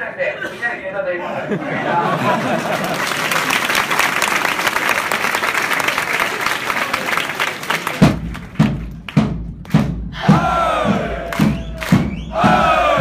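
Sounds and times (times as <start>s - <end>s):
crowd clapping: 2.0s - 9.9s, 10.8s - 13.0s
big drum beating: 8.0s - 13.0s
crowd singing a chant: 10.3s - 13.0s.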